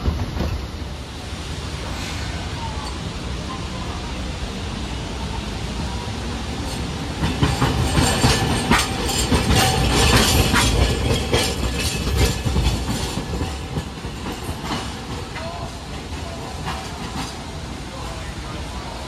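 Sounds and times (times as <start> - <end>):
tram rumbling past: 0.0 - 19.0
wheels clattering over rail joints: 6.7 - 17.4.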